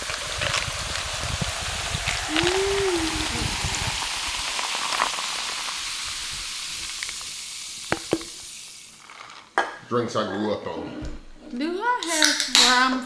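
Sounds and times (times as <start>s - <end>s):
soda fizzing over ice: 0.0s - 9.6s, 12.0s - 12.7s.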